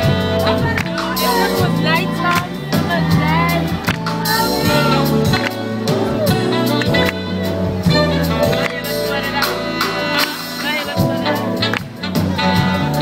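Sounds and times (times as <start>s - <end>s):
bass guitar: 0.0s - 13.0s
drum beat: 0.0s - 13.0s
electric guitars: 0.0s - 13.0s.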